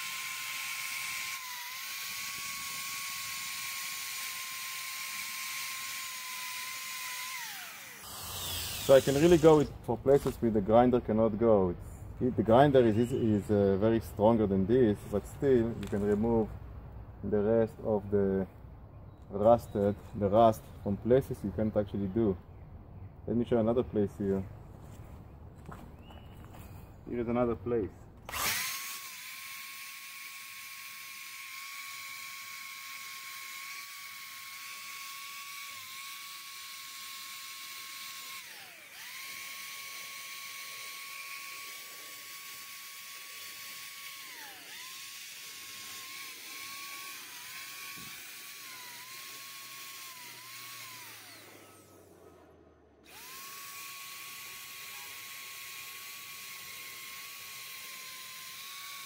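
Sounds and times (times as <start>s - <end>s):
power wire brush whining on metal: 0.0s - 10.4s, 28.3s - 59.0s.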